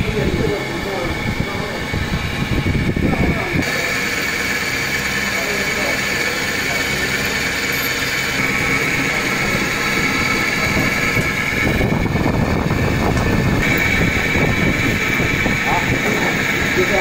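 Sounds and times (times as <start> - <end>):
mechanical drone with whine: 0.0 - 17.0
low rumble: 8.2 - 16.8.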